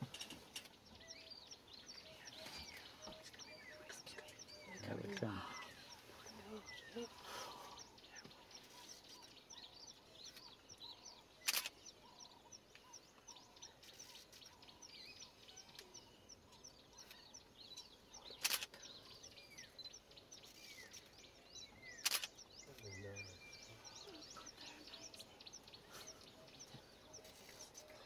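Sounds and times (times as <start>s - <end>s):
small birds chirping: 0.0s - 28.0s
sharp clicks: 11.4s - 11.8s, 18.3s - 18.8s, 22.0s - 22.4s.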